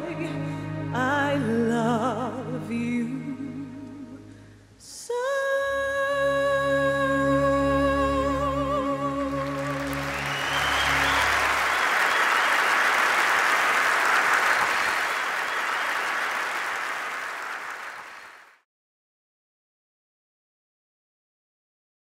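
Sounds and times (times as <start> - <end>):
woman singing with vibrato: 0.0 - 10.0
audience applause: 9.2 - 18.6.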